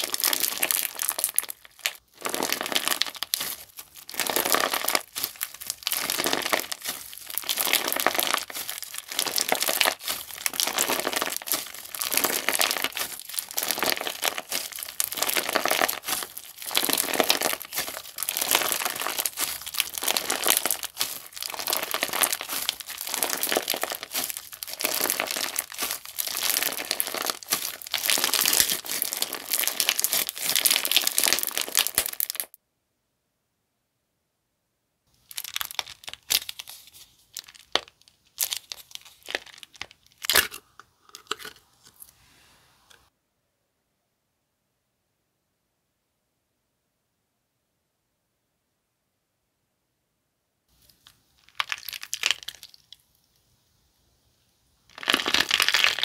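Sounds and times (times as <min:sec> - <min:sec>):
crunchy slime squeezed by hand: 0:00.0 - 0:32.5, 0:35.3 - 0:36.8, 0:51.4 - 0:53.0, 0:54.9 - 0:56.0.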